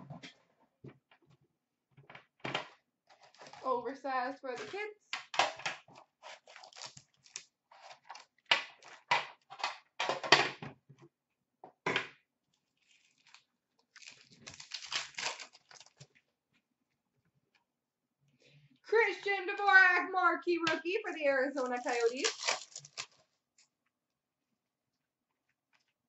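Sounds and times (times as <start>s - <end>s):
foil packs crinkling and tearing: 6.3s - 8.3s, 12.8s - 16.1s, 21.6s - 23.3s.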